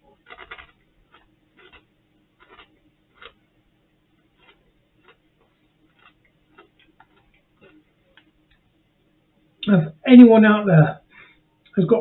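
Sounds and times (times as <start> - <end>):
man chewing crisps: 0.0 - 8.6.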